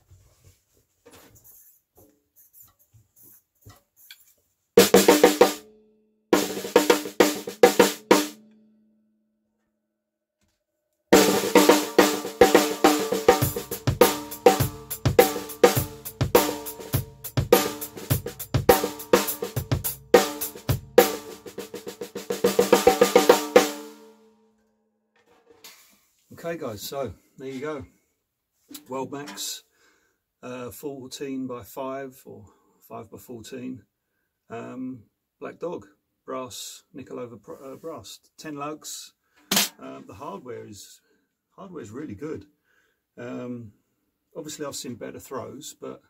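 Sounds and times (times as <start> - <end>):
snare drum fills: 6.4 - 8.4, 11.2 - 23.9.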